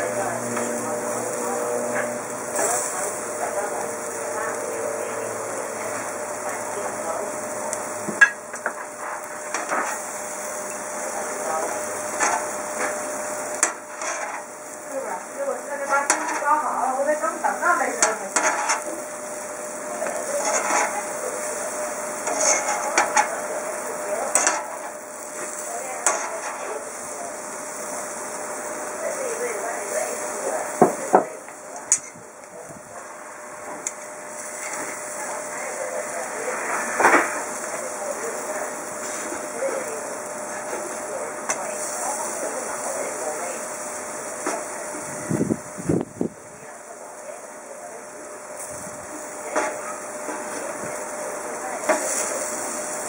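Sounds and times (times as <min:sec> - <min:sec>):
beef sizzling: 0:00.0 - 0:53.0
tongs and knife scraping hotplate: 0:00.1 - 0:27.5, 0:31.8 - 0:32.2, 0:33.8 - 0:35.0, 0:51.8 - 0:53.0.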